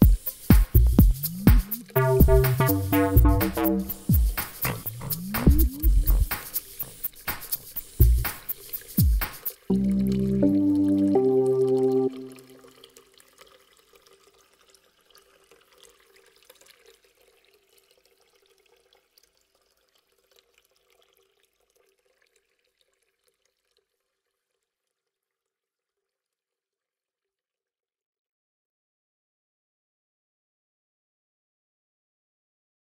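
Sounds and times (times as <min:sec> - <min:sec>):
electronic dance music: 0:00.0 - 0:12.4
low held tone: 0:02.0 - 0:06.3
crackly hiss: 0:04.3 - 0:09.7.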